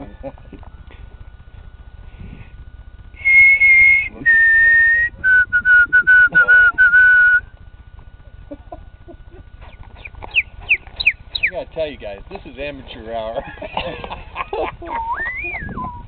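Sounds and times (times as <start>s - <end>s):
person whistling birdsong: 3.2s - 7.4s, 15.0s - 16.0s.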